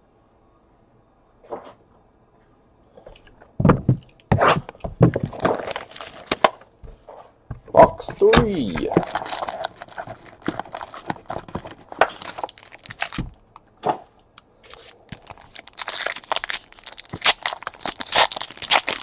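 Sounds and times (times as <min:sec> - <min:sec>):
card packs set on table: 0:05.1 - 0:06.6, 0:08.1 - 0:13.4, 0:14.6 - 0:19.0
wrapper crinkling and tearing: 0:05.2 - 0:06.6, 0:08.9 - 0:13.4, 0:14.6 - 0:19.0.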